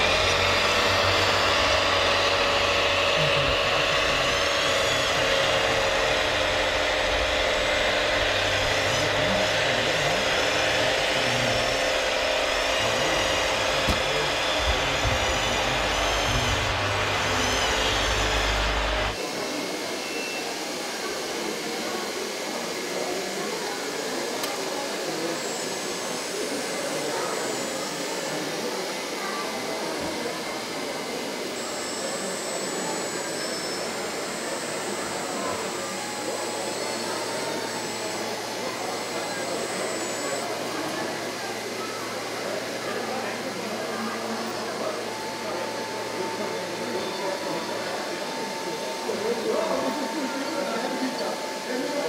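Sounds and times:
hydraulic pump whining: 0:00.0 - 0:19.2, 0:23.8 - 0:52.0
faint motor whine: 0:00.0 - 0:52.0
murmur of voices in a hall: 0:00.0 - 0:52.0.

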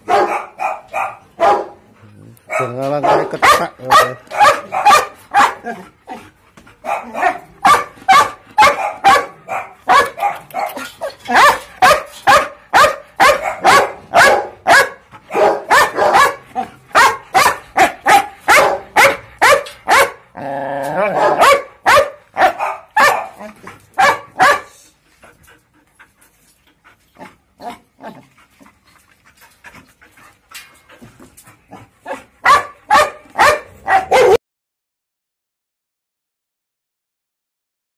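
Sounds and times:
dog barking: 0:00.0 - 0:01.8, 0:02.5 - 0:05.8, 0:06.8 - 0:20.2, 0:21.1 - 0:24.8, 0:32.4 - 0:34.4.

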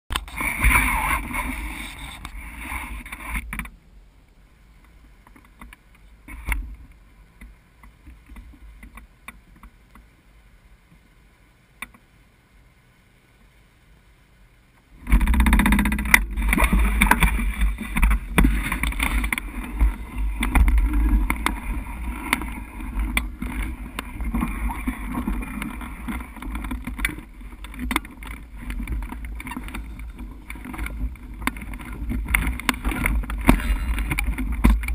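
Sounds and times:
scattered ticks: 0:15.0 - 0:34.9
wind buffeting microphone: 0:15.0 - 0:34.9.

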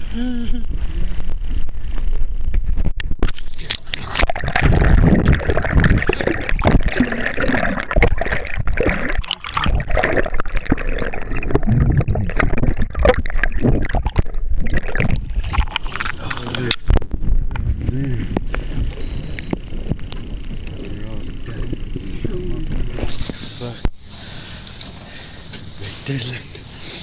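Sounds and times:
water gurgling underwater: 0:00.5 - 0:23.4.

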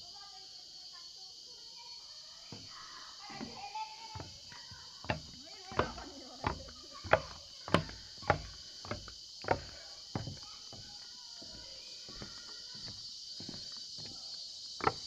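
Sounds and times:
high insect drone: 0:00.0 - 0:15.0
sharp knocks: 0:05.0 - 0:10.4.

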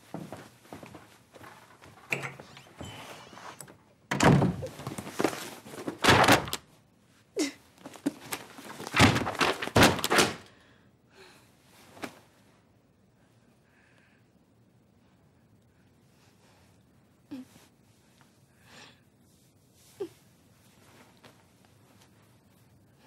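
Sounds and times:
door slamming: 0:04.1 - 0:04.8, 0:09.0 - 0:10.4.

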